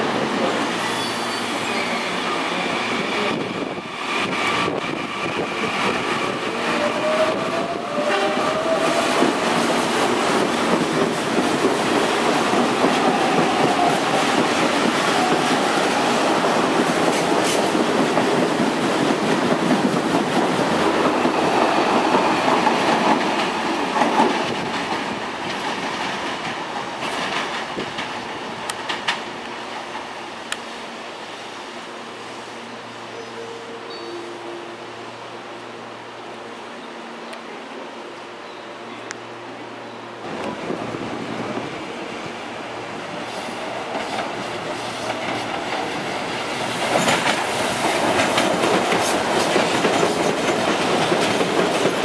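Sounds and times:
train rumbling past: 0.0s - 52.0s
wheels clacking over rail joints: 43.8s - 52.0s.

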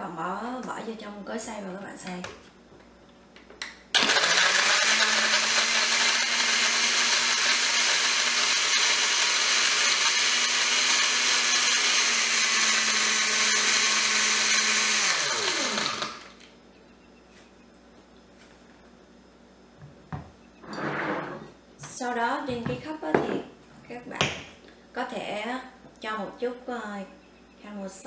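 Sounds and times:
blender blending ice: 4.0s - 16.4s.

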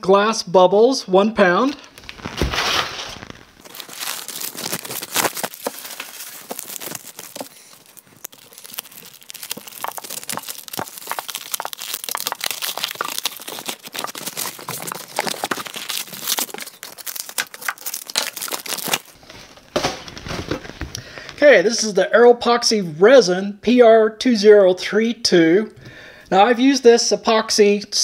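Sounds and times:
packing paper rustling: 1.6s - 21.2s
knife cutting wrapping: 1.9s - 20.2s.

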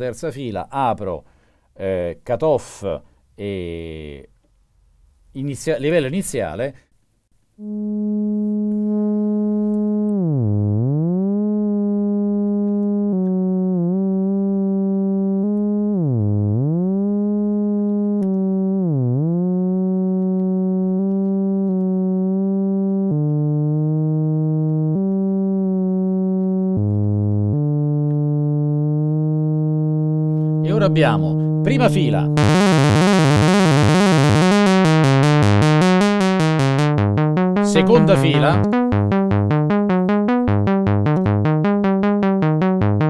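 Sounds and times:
buzzy synthesizer tone: 7.6s - 43.0s.

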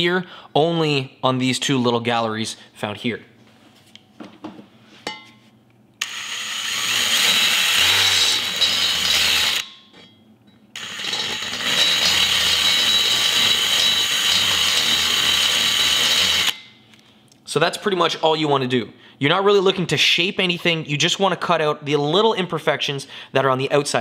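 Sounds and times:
rotary tool grinding metal: 6.0s - 9.7s, 10.8s - 16.6s.

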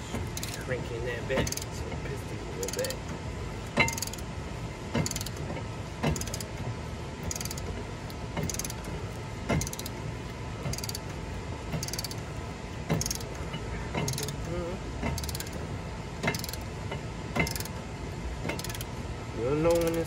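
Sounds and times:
ratchet tool clicking: 0.2s - 0.8s, 1.4s - 1.8s, 2.6s - 3.0s, 3.8s - 4.3s, 5.0s - 6.6s, 7.2s - 10.0s, 10.7s - 11.1s, 11.7s - 12.3s, 12.9s - 13.4s, 14.0s - 15.6s, 16.2s - 16.7s, 17.4s - 17.8s, 18.5s - 18.9s, 19.6s - 20.0s.

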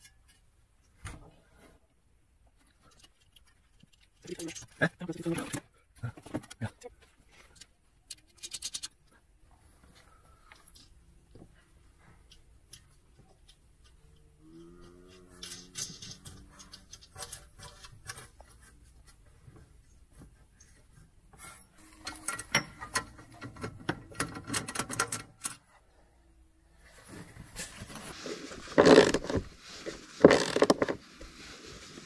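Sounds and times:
metallic clicks and scrapes: 2.6s - 5.6s, 7.3s - 9.2s, 12.1s - 20.0s, 20.6s - 25.8s
bolts clinking and rattling: 7.4s - 9.2s, 12.3s - 18.7s, 21.7s - 25.7s.

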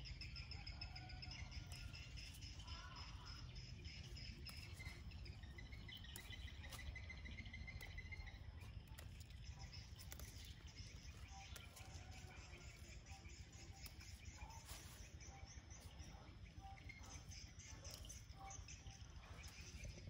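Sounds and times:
insects trilling: 0.0s - 20.0s
stems snapping: 4.0s - 15.2s.

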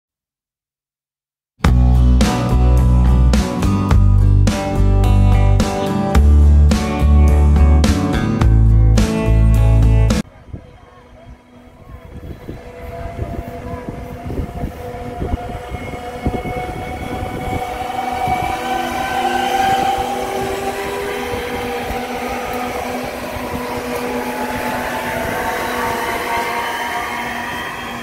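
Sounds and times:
train wheels rumbling: 10.2s - 28.0s
electric train traction whine: 10.3s - 28.0s.

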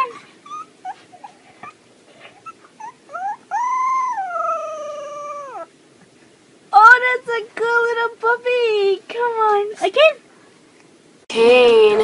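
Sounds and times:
puppy yipping: 2.4s - 5.7s
puppy howling: 2.4s - 5.8s.

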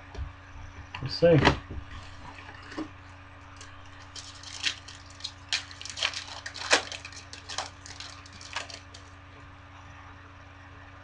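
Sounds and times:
foil wrapper crinkling: 3.5s - 9.2s.

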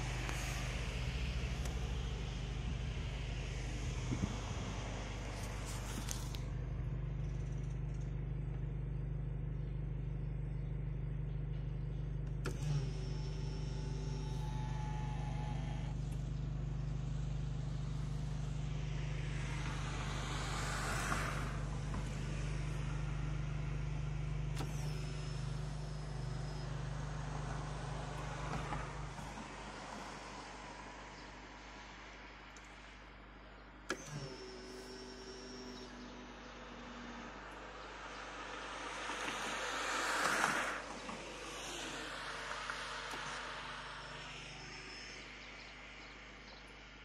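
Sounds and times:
wide swell of noise: 0.0s - 7.0s, 16.8s - 33.9s, 35.4s - 47.0s
diesel engine idling: 0.0s - 47.0s
mirror motors whining: 0.0s - 47.0s
mirror motor click: 24.5s - 30.4s, 37.1s - 45.6s.

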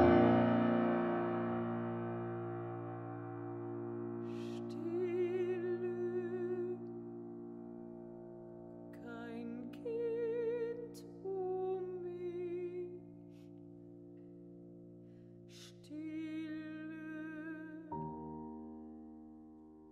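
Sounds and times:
piano chords: 0.0s - 19.9s
woman singing with vibrato: 4.4s - 6.8s, 9.0s - 13.0s, 15.8s - 17.9s.

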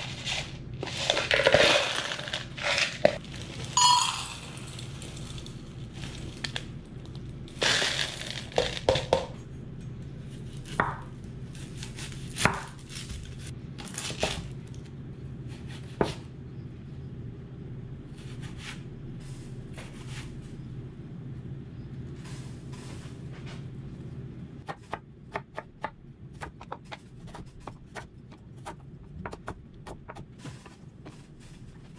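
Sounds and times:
steady low hum: 0.0s - 31.9s
plastic bag crinkling: 0.9s - 9.1s
onion skin rustling: 10.3s - 14.5s.

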